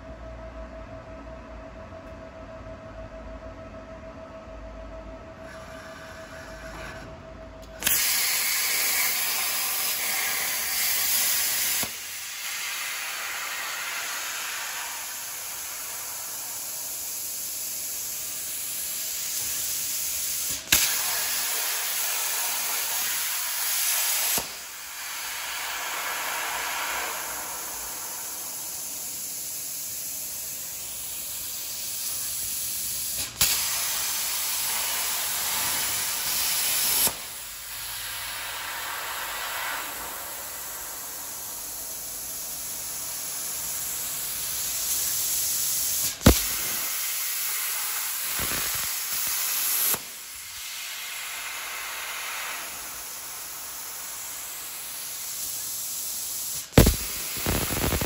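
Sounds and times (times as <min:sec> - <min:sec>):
plasma torch hissing: 0:07.7 - 0:58.0
arc striking crack: 0:46.1 - 0:47.0, 0:56.8 - 0:58.0.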